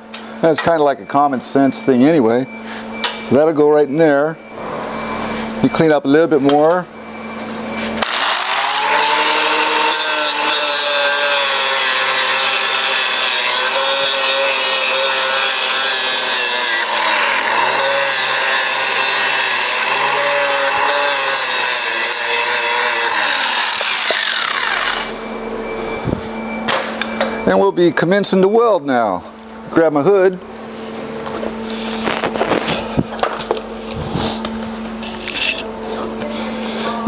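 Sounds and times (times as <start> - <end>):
angle grinder grinding metal: 8.0 - 25.2, 34.0 - 35.7.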